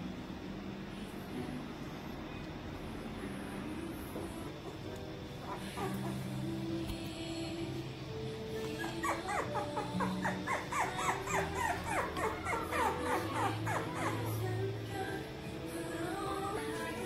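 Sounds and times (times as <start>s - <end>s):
background music: 0.0s - 17.0s
puppy yipping: 5.4s - 6.2s, 8.6s - 14.4s.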